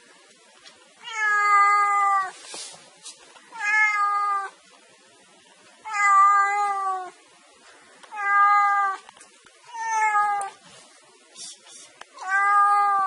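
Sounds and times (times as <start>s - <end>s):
cat meowing: 1.0s - 2.3s, 3.5s - 4.6s, 5.8s - 7.2s, 8.1s - 9.0s, 9.7s - 10.6s, 12.2s - 13.0s.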